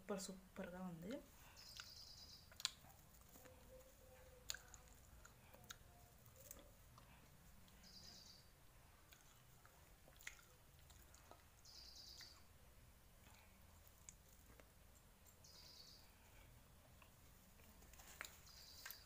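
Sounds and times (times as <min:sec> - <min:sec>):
bird chirping: 0:01.4 - 0:06.8, 0:07.7 - 0:08.6, 0:11.1 - 0:12.6, 0:15.2 - 0:16.4, 0:18.3 - 0:19.0.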